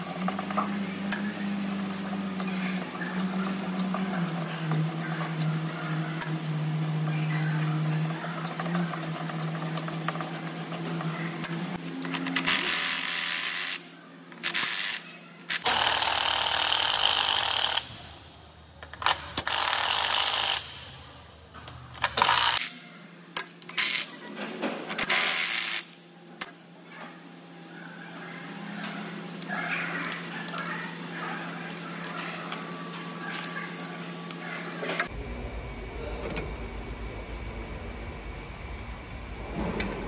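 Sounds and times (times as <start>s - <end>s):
steady low hum: 0.0s - 16.0s, 17.6s - 40.0s
impact wrench bursts: 14.4s - 18.0s, 19.0s - 20.9s, 25.0s - 26.0s.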